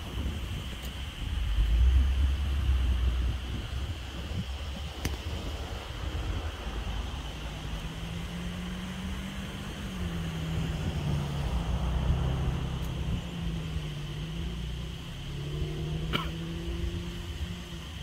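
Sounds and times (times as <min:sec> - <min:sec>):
droning hum: 0:00.0 - 0:18.0
distant thunder rumbling: 0:01.2 - 0:04.9.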